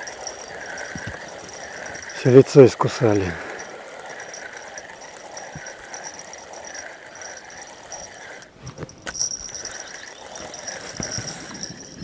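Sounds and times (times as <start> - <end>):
fishing reel winding: 0.0 - 12.0.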